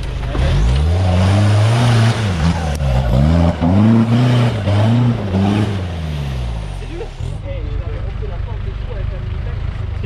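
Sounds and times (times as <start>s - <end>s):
engine revving under load: 0.0s - 7.5s.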